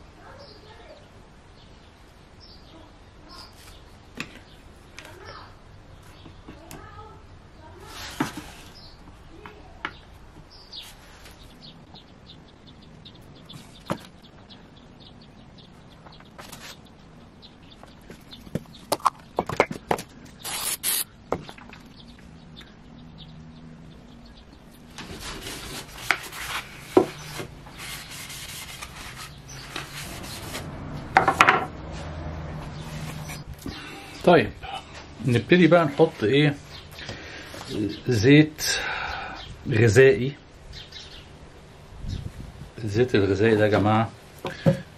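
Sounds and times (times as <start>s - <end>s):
sandpaper rubbing on wood: 20.4s - 21.0s, 25.2s - 30.7s.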